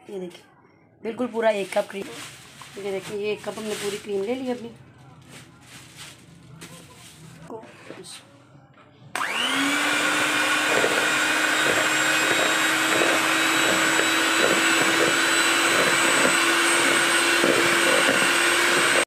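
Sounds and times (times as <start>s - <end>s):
electric hand mixer whipping cream: 9.2s - 19.0s.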